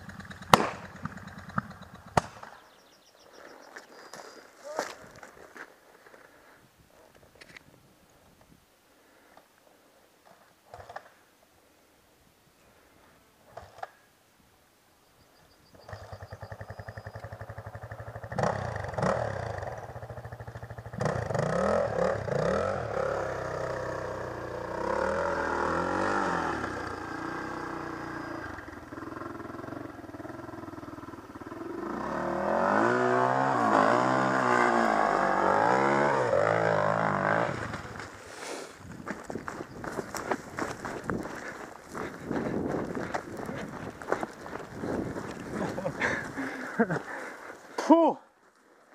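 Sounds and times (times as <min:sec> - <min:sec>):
motorcycle engine revving: 0:00.0 - 0:02.7, 0:15.8 - 0:38.2, 0:39.4 - 0:47.2.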